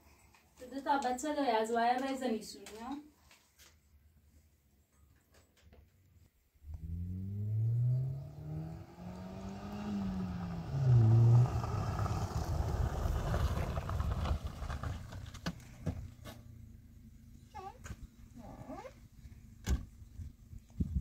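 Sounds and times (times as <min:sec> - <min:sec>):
car engine accelerating: 0:06.6 - 0:17.5
tyres crunching on gravel: 0:09.3 - 0:16.5.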